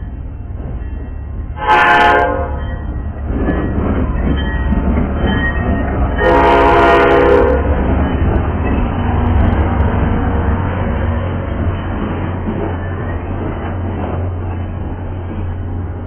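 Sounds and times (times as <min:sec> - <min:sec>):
diesel locomotive rumbling past: 0:00.0 - 0:16.0
train horn blasts: 0:01.6 - 0:02.6, 0:06.2 - 0:07.7.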